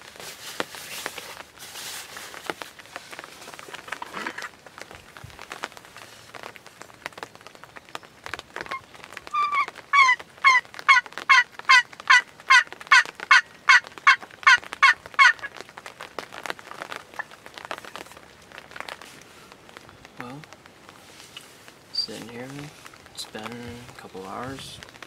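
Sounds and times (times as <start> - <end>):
turkey yelping: 8.7 - 15.5.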